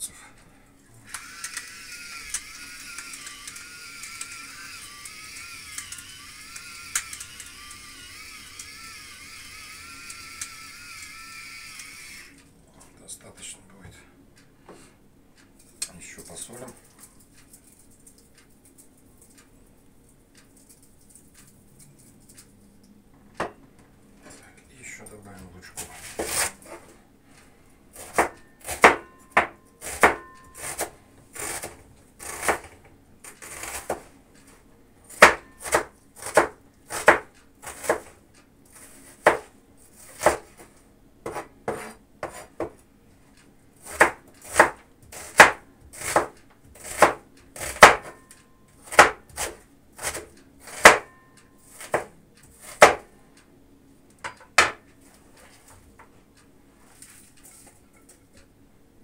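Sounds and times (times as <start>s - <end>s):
knife chopping on wooden board: 25.8s - 26.5s, 28.0s - 32.8s, 33.4s - 34.1s, 35.1s - 38.2s, 38.8s - 42.8s, 43.8s - 48.2s, 48.8s - 51.1s, 51.8s - 53.1s, 54.3s - 54.8s.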